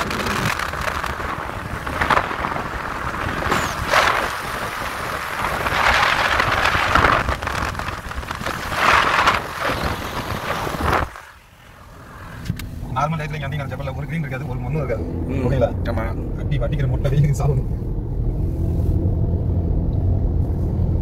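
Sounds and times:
car driving in drizzle: 0:00.0 - 0:12.7.

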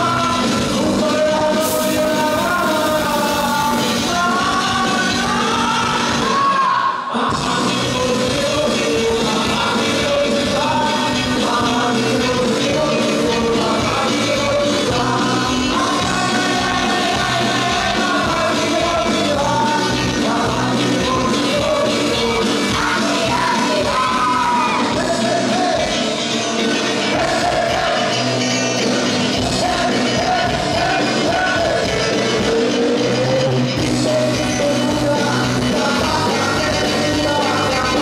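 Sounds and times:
live rock band playing: 0:00.0 - 0:38.0
man singing: 0:00.0 - 0:38.0.

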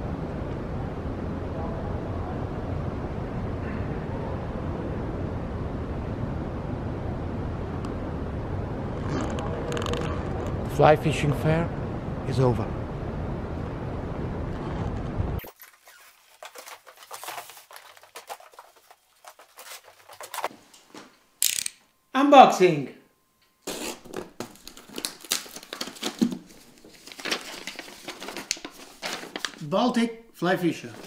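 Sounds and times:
cardboard boxes and paper rustling: 0:15.4 - 0:20.5, 0:23.7 - 0:29.7, 0:30.8 - 0:31.0.

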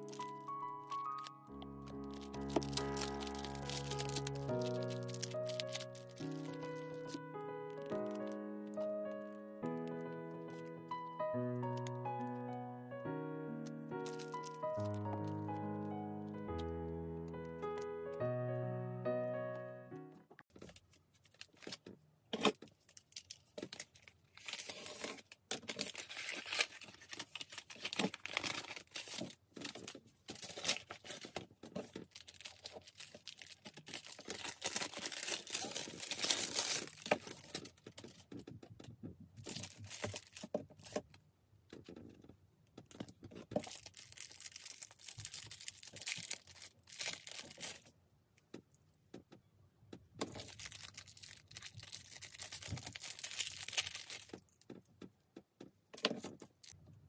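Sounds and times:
plastic packaging crinkling: 0:00.0 - 0:12.5, 0:13.6 - 0:16.7, 0:20.5 - 0:38.4, 0:39.4 - 0:41.1, 0:43.5 - 0:47.9, 0:50.2 - 0:54.6
paper mailer tearing: 0:01.9 - 0:08.4, 0:24.4 - 0:29.3, 0:32.2 - 0:37.6.

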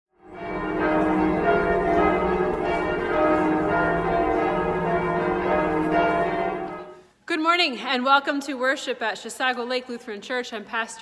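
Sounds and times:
church bells ringing: 0:00.2 - 0:07.1.

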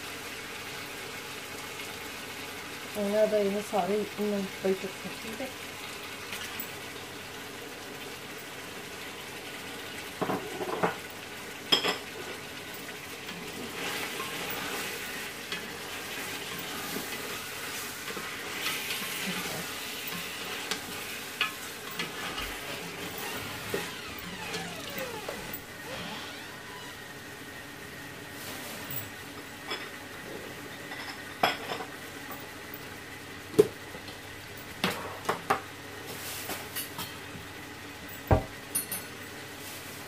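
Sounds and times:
meat sizzling in a pot: 0:00.0 - 0:40.0
wooden spoon stirring and scraping: 0:13.3 - 0:25.8.

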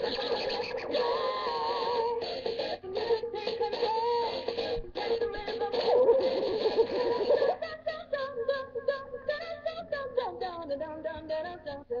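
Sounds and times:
warbling voice-like rap: 0:00.0 - 0:07.6.

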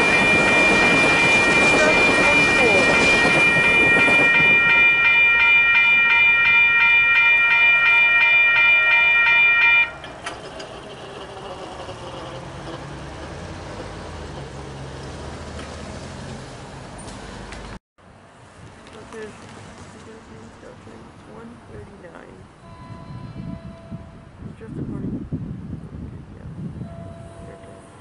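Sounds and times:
railroad crossing bell ringing: 0:00.0 - 0:12.0, 0:22.6 - 0:24.3, 0:26.8 - 0:28.0.

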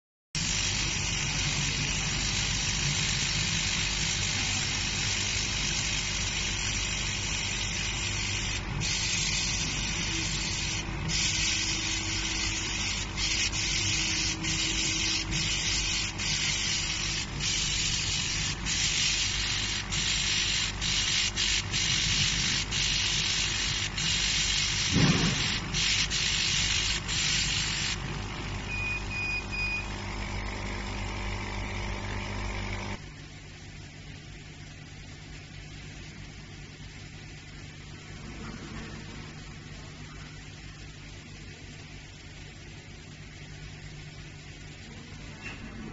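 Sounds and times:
laser engraver high hiss: 0:00.4 - 0:33.0
low machine hum: 0:00.4 - 0:45.9.

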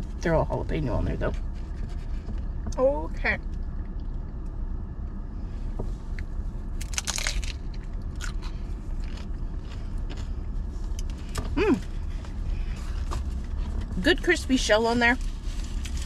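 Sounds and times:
low car hum: 0:00.0 - 0:16.0
crunching and chewing: 0:06.2 - 0:13.6, 0:15.6 - 0:16.0
person humming mm: 0:11.6 - 0:11.8.

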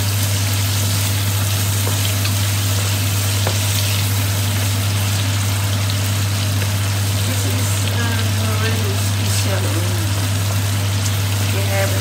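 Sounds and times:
food sizzling in hot oil: 0:00.0 - 0:12.0
steady low hum: 0:00.0 - 0:12.0.

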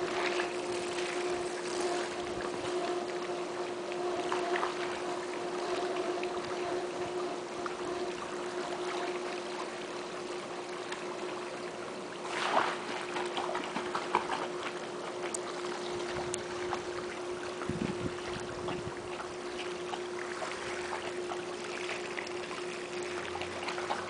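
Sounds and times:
dog paddling with small splashes: 0:00.0 - 0:24.0
steady hum: 0:00.0 - 0:24.0.

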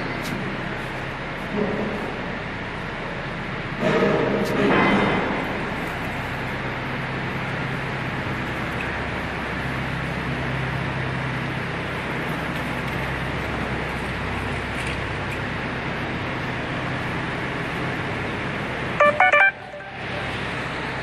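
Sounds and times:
low hum: 0:00.0 - 0:21.0
electronic beeps: 0:19.0 - 0:20.2.

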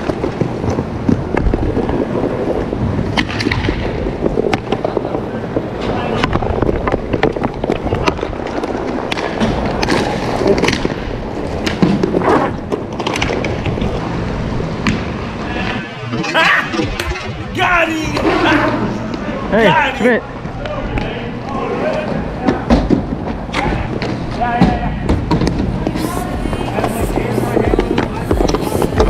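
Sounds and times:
skate wheels rolling on plastic tiles: 0:00.0 - 0:14.4.

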